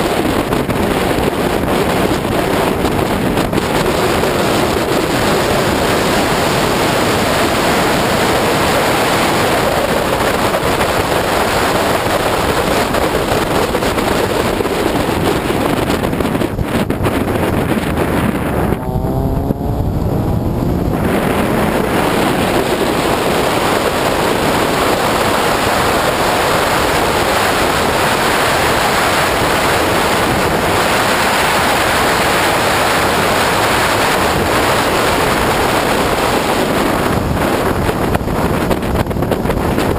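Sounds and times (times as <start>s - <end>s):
car engine: 0.0s - 39.9s
road noise: 0.0s - 39.9s
wind rushing on microphone: 0.0s - 39.9s.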